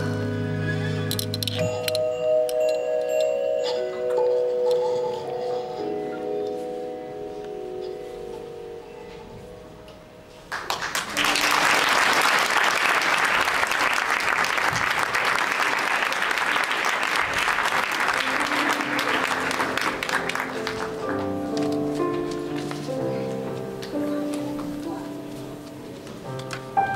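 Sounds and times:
audience applause: 0:10.5 - 0:21.3.

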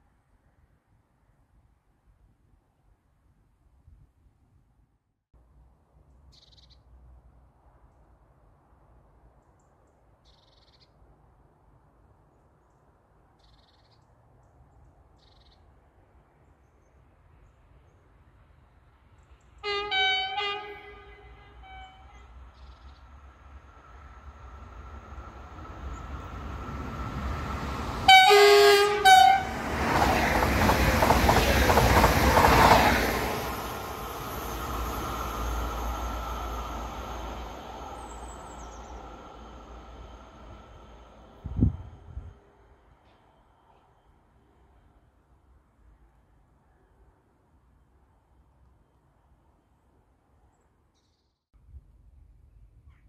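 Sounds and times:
train passing with loud rush: 0:15.7 - 0:50.1
train horn blasts: 0:19.6 - 0:22.4, 0:28.1 - 0:29.6.

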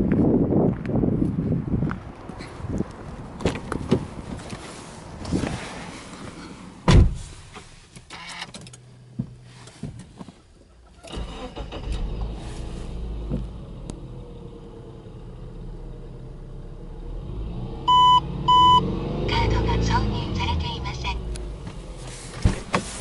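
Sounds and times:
car engine starting and idling: 0:03.4 - 0:23.0
car door shutting: 0:06.8 - 0:10.3, 0:21.6 - 0:23.0.

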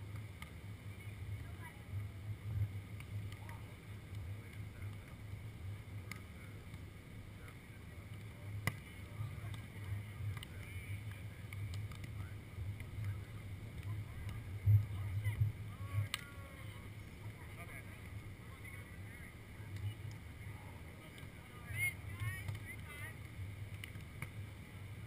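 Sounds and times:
faint distant voices: 0:00.0 - 0:25.0
wind rumbling on microphone: 0:09.2 - 0:25.0.

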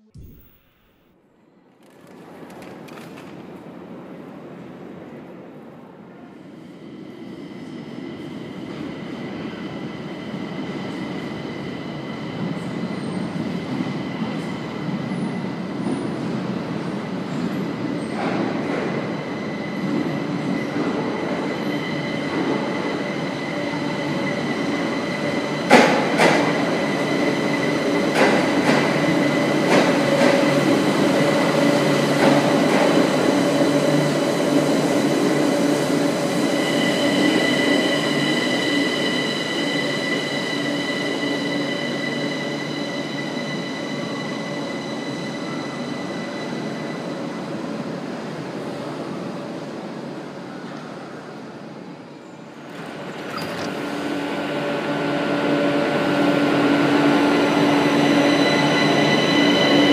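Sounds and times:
high-pitched tones: 0:00.0 - 0:01.1
train rumbling: 0:01.8 - 0:50.2, 0:52.4 - 0:59.9.

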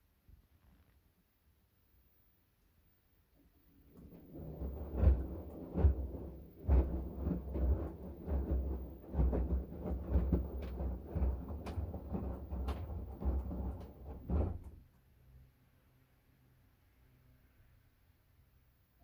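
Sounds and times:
washing machine drum thuds and swishes: 0:03.9 - 0:14.9.

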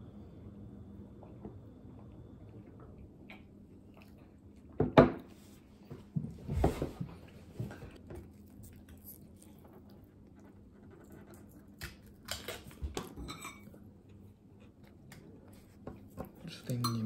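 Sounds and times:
dishes clinking: 0:13.0 - 0:13.8, 0:16.6 - 0:17.0.

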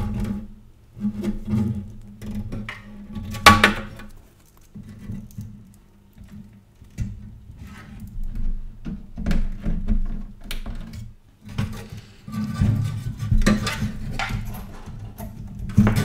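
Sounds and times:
cables rustling and clicking: 0:03.9 - 0:09.3.

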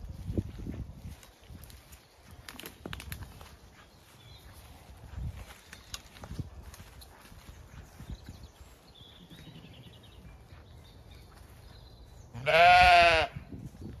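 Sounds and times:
sheep bleating: 0:12.4 - 0:13.4.

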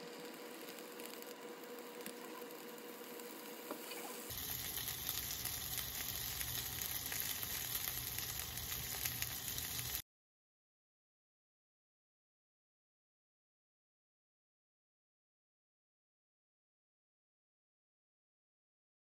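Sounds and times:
sausages sizzling in a pan: 0:00.0 - 0:10.0.

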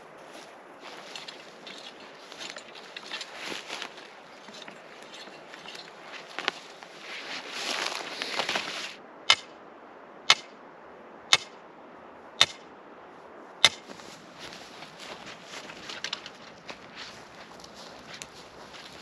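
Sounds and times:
hoe scraping soil and grass: 0:00.0 - 0:09.0, 0:13.7 - 0:19.0.

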